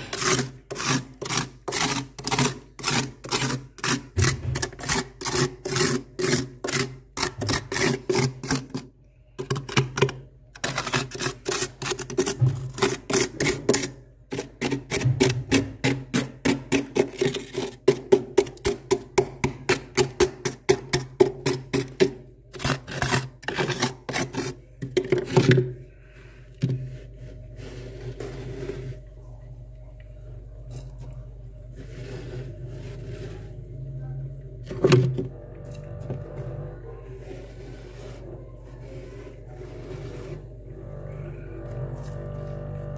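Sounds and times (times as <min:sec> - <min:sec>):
hand scraping freezer frost: 0:00.0 - 0:29.2, 0:30.7 - 0:33.9, 0:34.6 - 0:42.9
low steady hum: 0:17.0 - 0:42.9.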